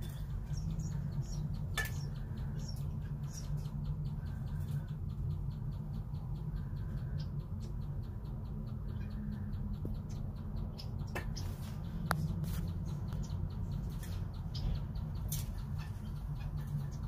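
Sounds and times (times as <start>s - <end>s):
low steady hum: 0.0s - 17.0s
quail peeping: 0.0s - 17.0s.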